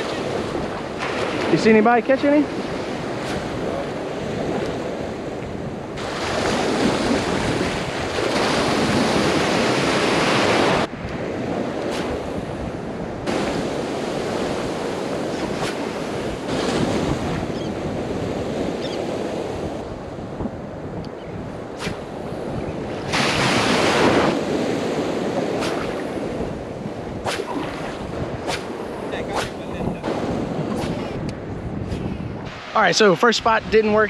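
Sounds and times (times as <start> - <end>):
small waves breaking: 0.0 - 20.8, 21.5 - 31.2
wind buffeting microphone: 0.0 - 34.0.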